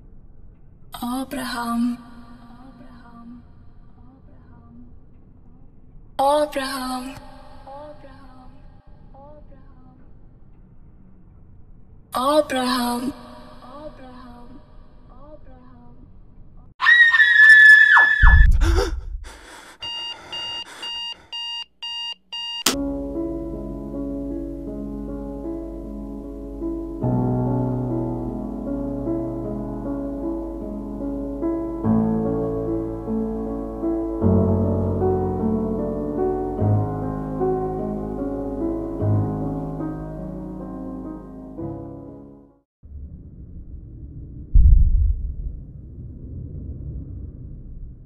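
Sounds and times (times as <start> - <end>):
loud high-pitched scream: 16.8 - 18.6
alarm clock beeping: 19.8 - 22.8
piano film score: 22.7 - 42.6
deep low thud: 43.0 - 48.0.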